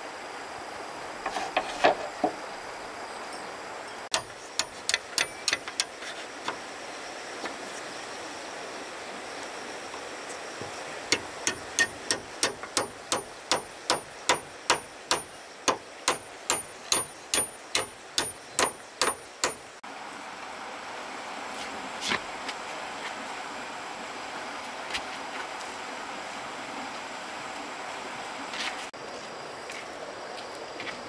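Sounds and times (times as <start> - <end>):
steady background hiss: 0.0 - 31.0
hand tool striking rhythmically: 4.1 - 5.9, 11.1 - 19.8.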